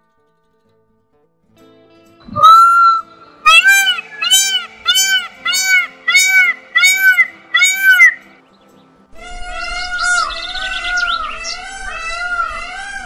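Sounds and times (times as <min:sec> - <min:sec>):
peafowl calling: 0:02.3 - 0:08.3, 0:09.2 - 0:13.0.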